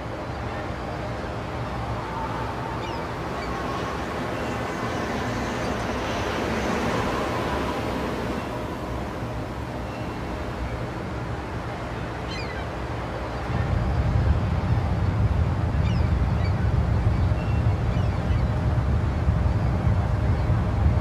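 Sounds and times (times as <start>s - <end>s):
rumbling sea and wind: 0.0s - 21.0s
faint high falling cries: 1.6s - 10.3s.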